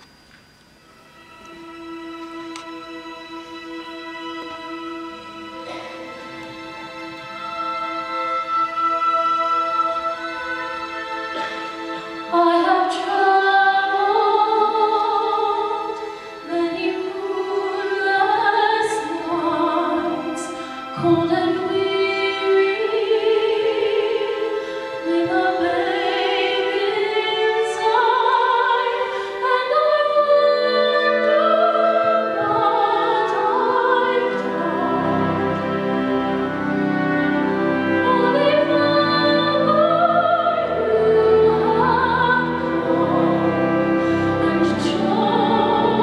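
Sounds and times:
symphony orchestra: 0.0s - 46.0s
girl singing with vibrato: 12.2s - 35.4s, 38.0s - 43.4s.

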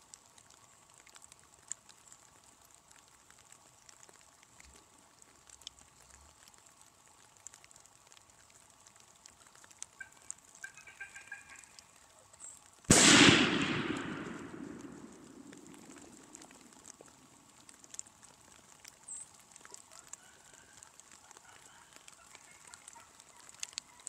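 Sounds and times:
shotgun shot: 12.9s - 15.9s.

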